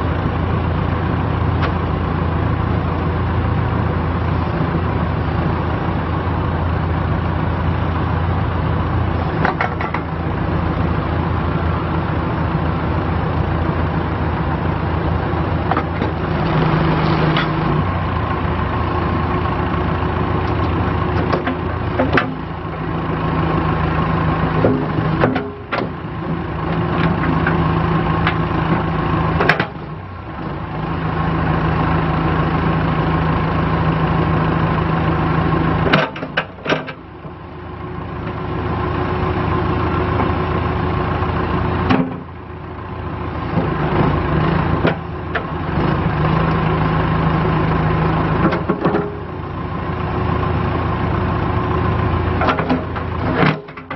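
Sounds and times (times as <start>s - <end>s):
diesel engine running: 0.0s - 53.9s
backhoe knocks: 9.4s - 10.1s, 24.6s - 26.0s, 41.8s - 42.3s, 48.4s - 49.3s.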